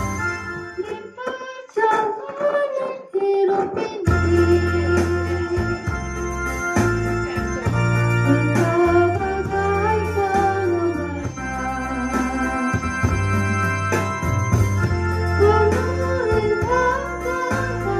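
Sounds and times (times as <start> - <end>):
organ chords on keyboard: 0.0 - 1.4, 4.1 - 17.9
woman singing: 0.8 - 5.9, 8.2 - 13.7, 15.4 - 17.9
deep bass line: 4.1 - 17.9.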